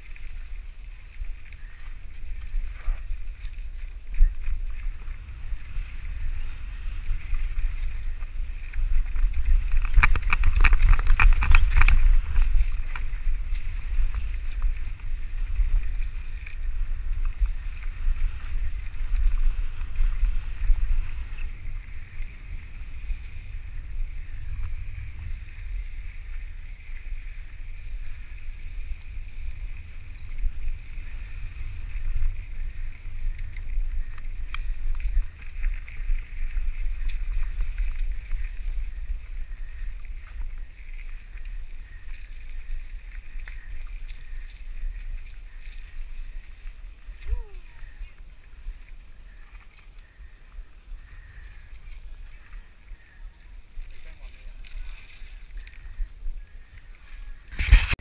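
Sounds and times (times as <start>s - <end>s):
bike clattering over rough ground: 0.0s - 25.4s, 57.5s - 58.0s
wind rumble on microphone: 0.0s - 58.0s.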